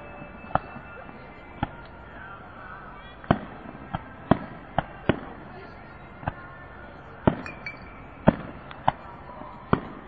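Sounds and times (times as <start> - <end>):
faint music: 0.0 - 10.0
fireworks bangs: 8.2 - 9.1.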